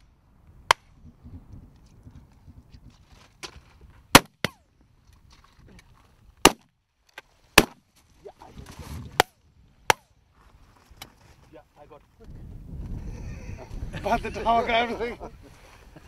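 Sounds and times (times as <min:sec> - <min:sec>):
shotguns firing: 0:04.1 - 0:04.6.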